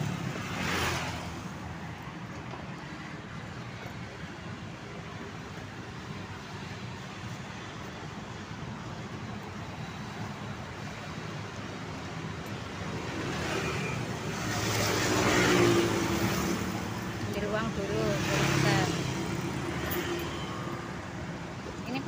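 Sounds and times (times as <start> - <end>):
street traffic rumble: 0.0 - 22.0.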